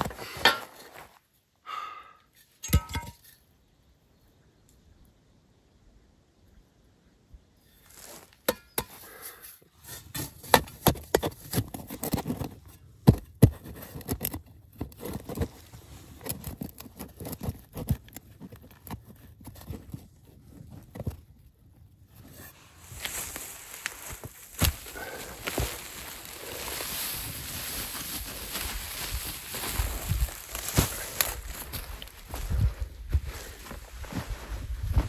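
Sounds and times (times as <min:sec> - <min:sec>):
metal pipe scraping soil: 0:00.0 - 0:01.0, 0:02.3 - 0:03.5, 0:07.6 - 0:21.1, 0:22.0 - 0:31.5
loose dirt crumbling: 0:00.0 - 0:01.5, 0:02.3 - 0:03.9, 0:07.4 - 0:35.0
metal knocking against earth: 0:02.6 - 0:03.3.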